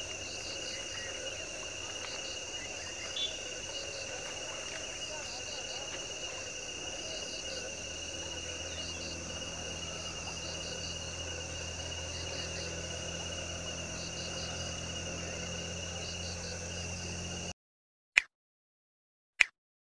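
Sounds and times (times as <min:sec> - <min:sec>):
short insect chirps: 0:00.0 - 0:06.5
insect chorus drone: 0:00.0 - 0:17.5.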